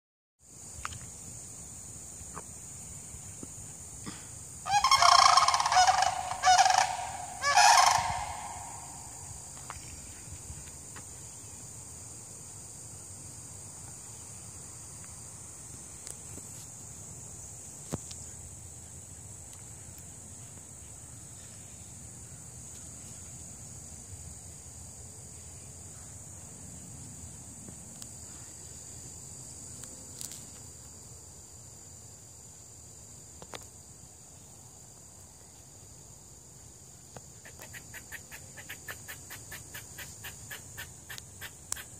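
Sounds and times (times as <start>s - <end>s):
high insect trill: 0.4s - 41.9s
cranes rattling calls: 4.7s - 9.2s.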